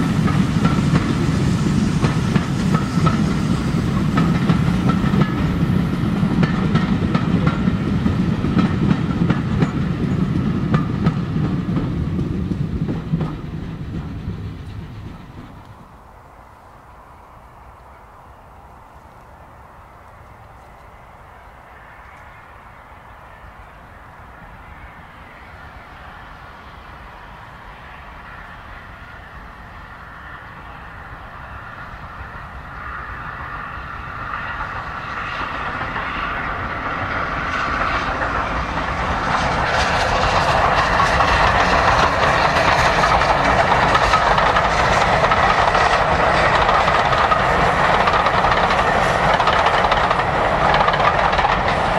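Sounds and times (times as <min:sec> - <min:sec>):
wheels clacking over rails: 0:00.0 - 0:15.9, 0:34.5 - 0:51.9
train rolling noise: 0:00.0 - 0:51.9.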